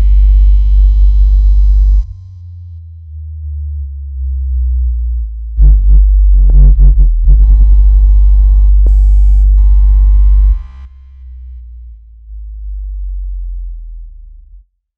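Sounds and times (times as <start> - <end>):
deep steady bass tone: 0.0 - 14.9.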